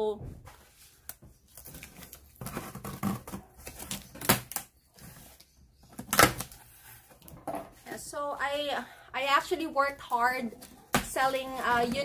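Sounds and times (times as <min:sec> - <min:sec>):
cardboard rustling: 0:00.5 - 0:08.0, 0:10.1 - 0:12.0.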